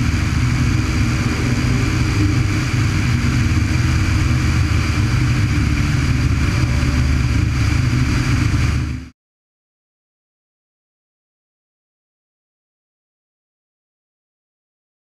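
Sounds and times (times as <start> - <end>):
airflow rushing over microphone: 0.0 - 9.1
propeller aircraft engine drone: 0.0 - 9.1.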